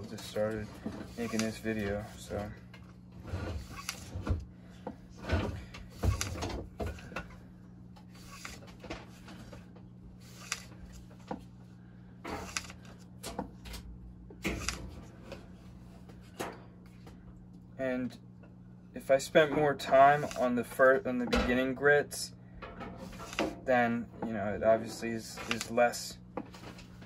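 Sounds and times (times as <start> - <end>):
steel scraping on wet sandpaper: 1.1 - 1.6.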